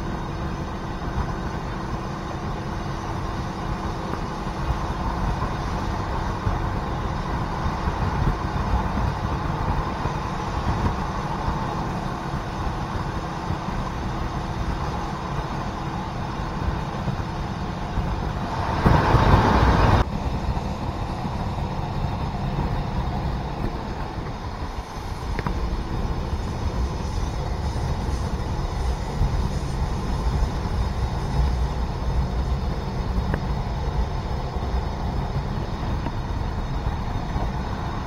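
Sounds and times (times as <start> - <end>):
diesel railcar running: 0.0 - 38.0
loud rush: 14.3 - 22.6.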